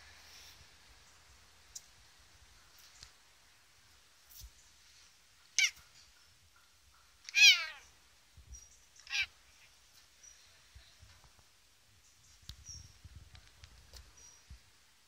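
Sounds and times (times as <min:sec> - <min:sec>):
cat meowing: 0:05.6 - 0:05.8, 0:07.3 - 0:07.9, 0:09.0 - 0:09.3.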